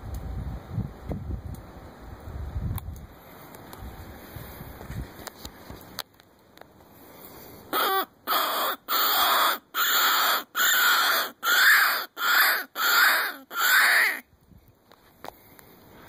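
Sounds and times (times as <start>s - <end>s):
predator call harsh cries: 7.7s - 14.2s.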